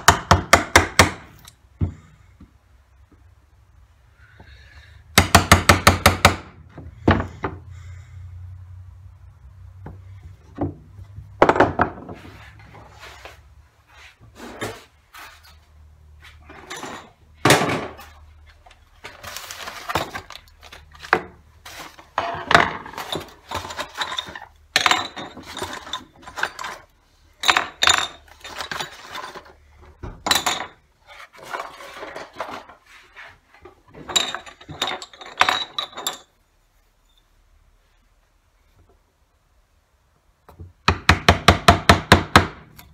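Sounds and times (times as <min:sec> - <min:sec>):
tools clattering: 0:19.0 - 0:32.8, 0:33.8 - 0:36.4.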